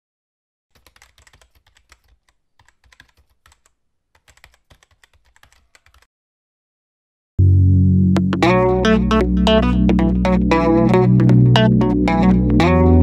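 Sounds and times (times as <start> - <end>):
computer keyboard typing: 0.7 - 6.1.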